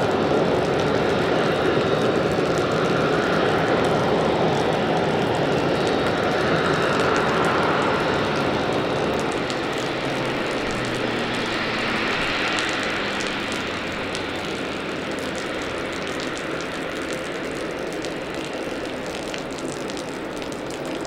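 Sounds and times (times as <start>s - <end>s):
jet airliners droning: 0.0s - 21.0s
low hum: 9.0s - 16.0s.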